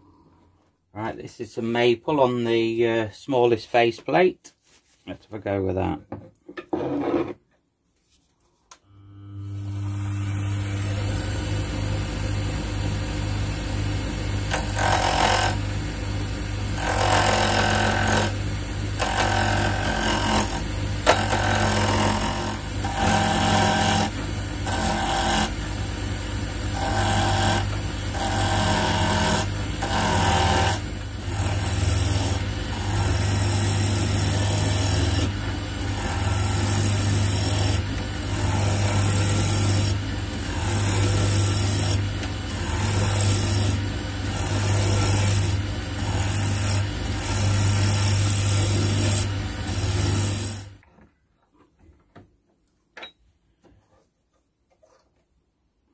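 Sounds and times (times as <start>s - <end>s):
wood lathe running: 13.9s - 26.0s, 26.6s - 50.8s
gouge cutting wood: 14.5s - 15.6s, 16.8s - 18.4s, 19.0s - 25.7s, 26.7s - 50.8s.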